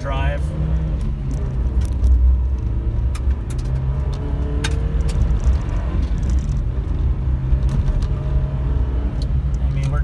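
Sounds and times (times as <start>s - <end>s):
car engine running under load: 0.0s - 10.0s
tyre and road noise: 0.0s - 10.0s
sharp clicks and knocks: 1.0s - 8.2s.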